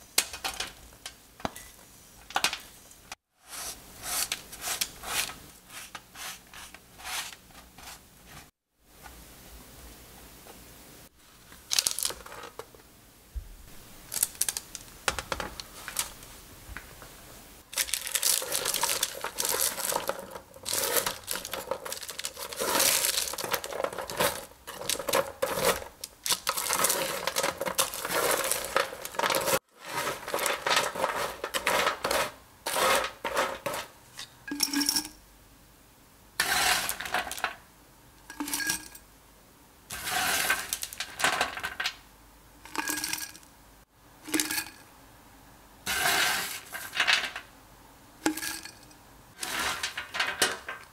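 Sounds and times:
spatula scraping baking tray: 0:03.4 - 0:08.5, 0:18.4 - 0:34.0, 0:36.4 - 0:37.5, 0:39.9 - 0:40.9, 0:45.9 - 0:47.0, 0:49.4 - 0:50.8
granola crackling rattle: 0:11.7 - 0:12.3, 0:14.0 - 0:15.0, 0:17.7 - 0:33.3.

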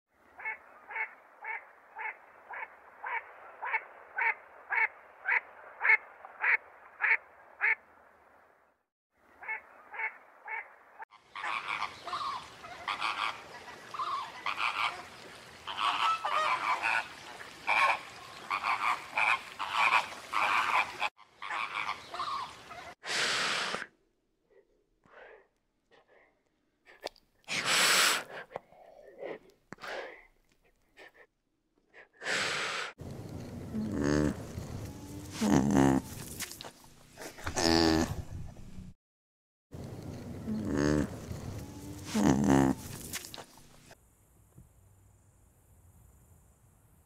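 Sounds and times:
flamingos honking: 0:11.3 - 0:23.0.

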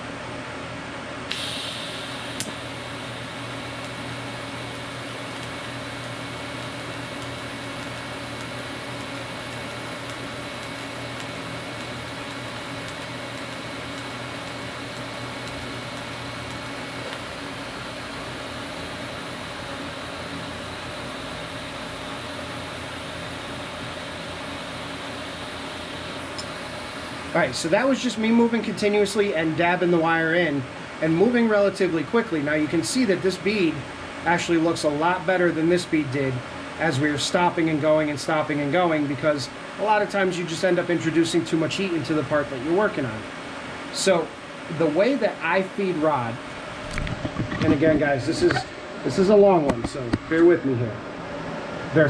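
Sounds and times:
high-pitched arc crackle: 0:01.3 - 0:43.2
welding arc hissing: 0:01.3 - 0:50.1
sharp click: 0:02.4 - 0:02.6.

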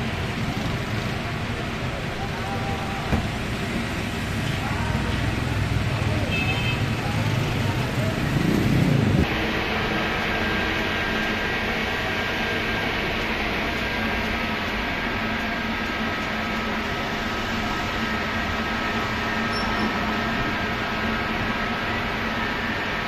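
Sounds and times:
mechanical hum: 0:00.0 - 0:23.0
rushing air: 0:08.0 - 0:23.0.

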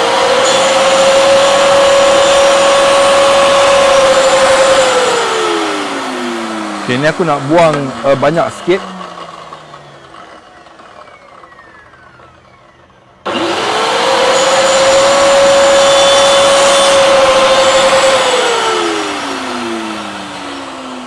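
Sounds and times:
table saw motor whine: 0:00.0 - 0:21.0.

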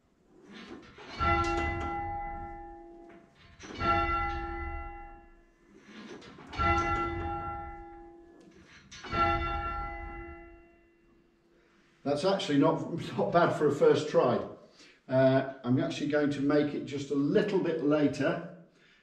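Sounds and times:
simulated bell: 0:00.6 - 0:11.3
church bell striking: 0:01.1 - 0:05.6, 0:06.5 - 0:11.1.

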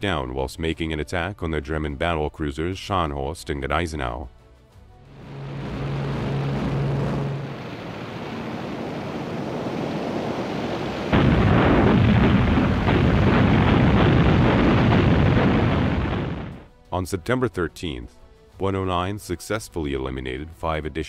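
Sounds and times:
aircraft engines droning: 0:05.1 - 0:11.1
rumble of explosions: 0:05.1 - 0:16.7.

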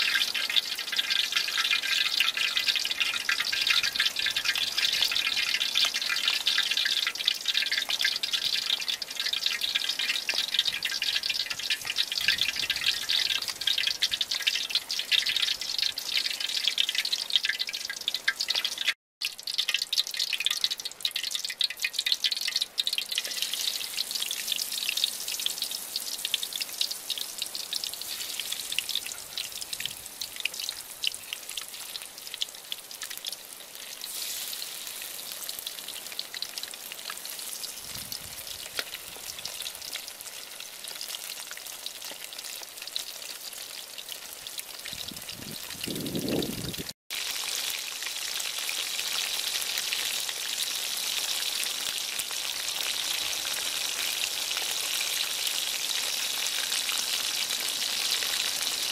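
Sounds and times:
oil sizzling and crackling: 0:00.0 - 0:58.9.

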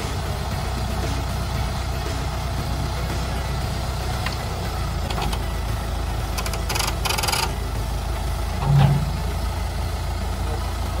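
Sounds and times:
tractor engine idling: 0:00.0 - 0:11.0
brief low sound: 0:08.6 - 0:09.6.

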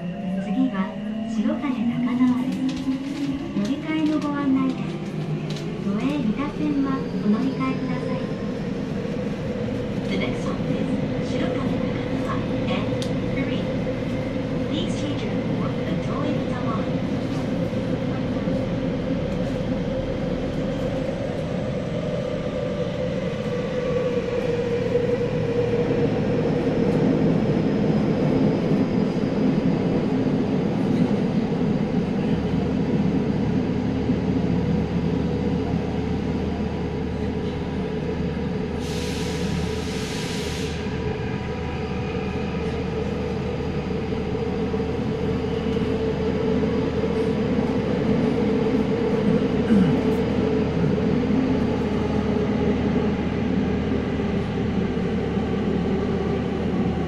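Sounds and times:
subway car wheels rumbling: 0:00.0 - 0:57.0.

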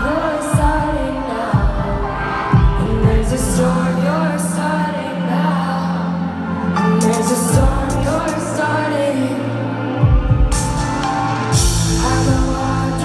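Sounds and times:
woman singing: 0:00.0 - 0:10.6, 0:11.7 - 0:13.0.

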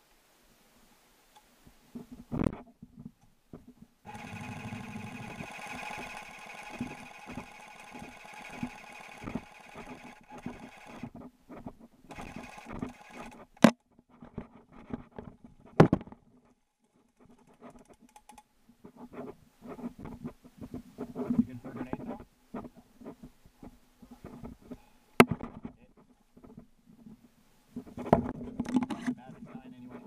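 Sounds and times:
airsoft rifle firing full auto: 0:04.1 - 0:11.1, 0:12.1 - 0:13.4.

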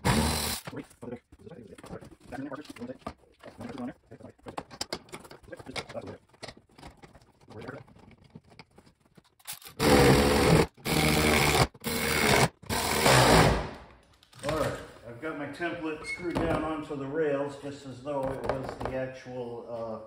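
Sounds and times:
power drill running: 0:00.0 - 0:00.6, 0:09.5 - 0:13.6.

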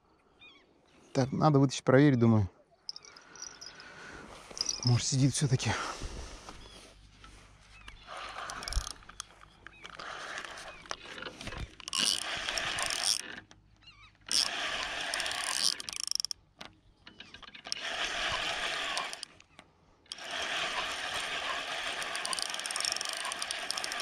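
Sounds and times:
fishing reel being cranked: 0:04.6 - 0:05.0, 0:08.0 - 0:13.6, 0:14.2 - 0:16.4, 0:17.1 - 0:19.5, 0:20.1 - 0:24.0.

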